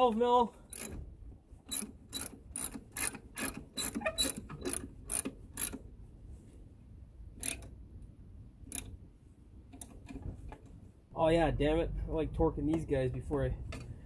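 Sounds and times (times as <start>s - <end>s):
ratchet wrench clicking: 0.7s - 1.0s, 1.7s - 5.8s, 7.4s - 7.7s.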